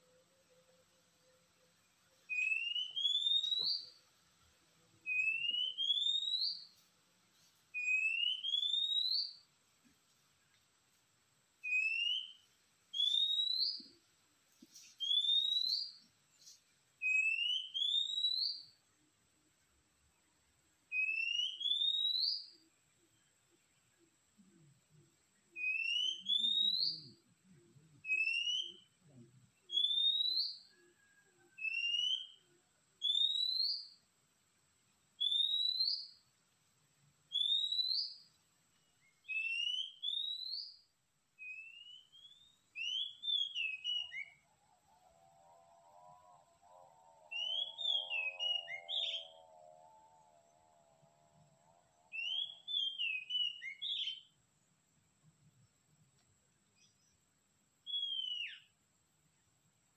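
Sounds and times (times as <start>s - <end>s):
whistled bird call: 2.3s - 4.0s, 5.0s - 6.8s, 7.8s - 9.4s, 11.6s - 13.9s, 14.9s - 16.0s, 17.0s - 18.8s, 20.9s - 22.6s, 25.6s - 27.2s, 28.0s - 29.0s, 29.7s - 34.0s, 35.2s - 36.2s, 37.3s - 38.3s, 39.0s - 40.8s, 41.4s - 44.5s, 46.5s - 49.4s, 52.1s - 54.4s, 57.8s - 58.7s.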